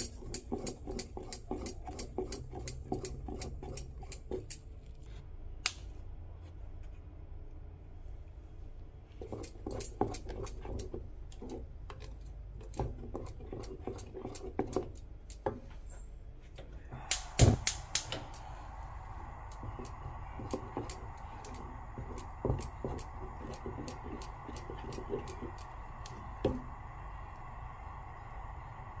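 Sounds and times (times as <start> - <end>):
wooden spoon scraping saucepan: 12.9 - 14.8
steady hum: 16.5 - 29.0
sharp clicks: 17.1 - 18.5.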